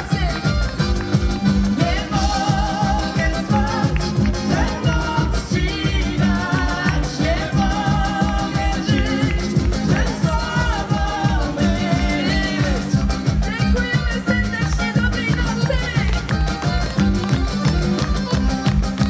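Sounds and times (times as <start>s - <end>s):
double bass: 0.0s - 19.0s
fast steady beat: 0.0s - 19.0s
woman singing: 1.7s - 16.8s.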